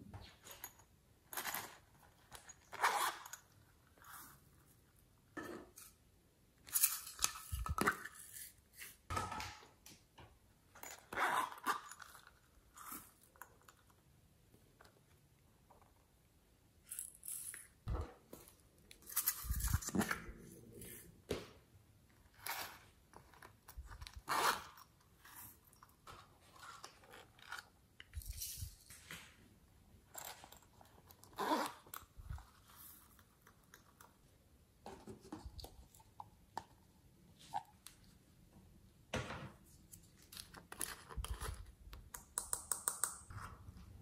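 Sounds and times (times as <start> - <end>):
hands handling toys and clay: 39.6 - 43.7.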